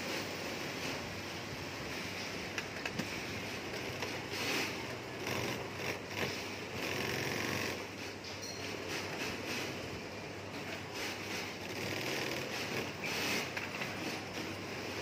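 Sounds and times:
low workshop hum: 0.0 - 15.0
industrial sewing machine stitching: 3.1 - 8.2, 10.6 - 15.0.

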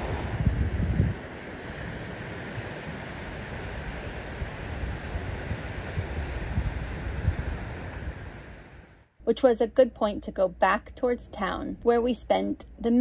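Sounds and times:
surf washing on beach: 0.0 - 9.1
wind rumbling on microphone: 0.0 - 9.1.

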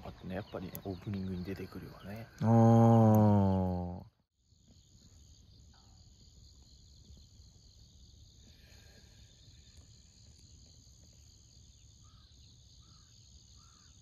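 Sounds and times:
crickets chirping: 0.0 - 14.0
crow cawing: 12.0 - 13.9.

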